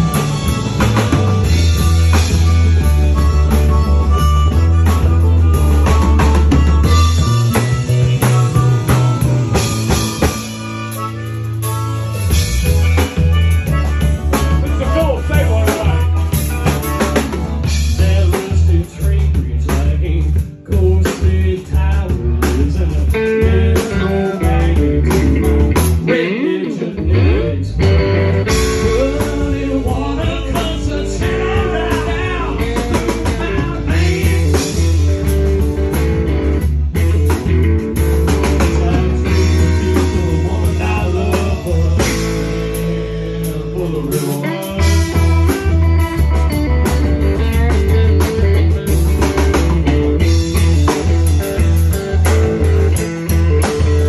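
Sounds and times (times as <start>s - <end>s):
harmonica: 0.0s - 19.0s
drum kit: 0.0s - 54.0s
electric guitar: 0.0s - 54.0s
heavy bass line: 0.0s - 54.0s.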